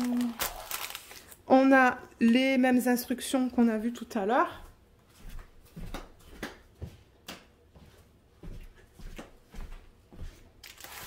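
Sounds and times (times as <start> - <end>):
paper sheets rustling: 0.0 - 1.4, 10.6 - 11.0.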